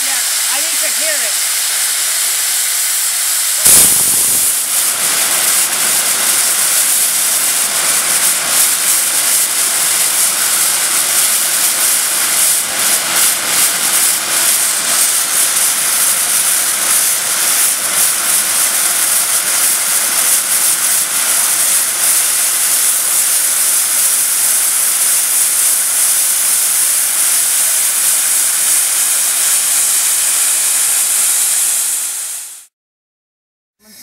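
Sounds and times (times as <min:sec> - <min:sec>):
steam hissing from pipe: 0:00.0 - 0:32.7.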